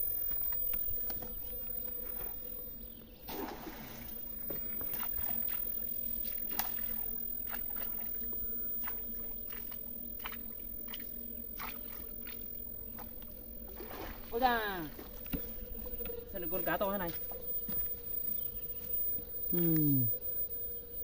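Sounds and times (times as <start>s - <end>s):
rake splashing into pond: 3.3s - 5.6s, 13.7s - 15.1s
water sloshing: 3.3s - 17.4s.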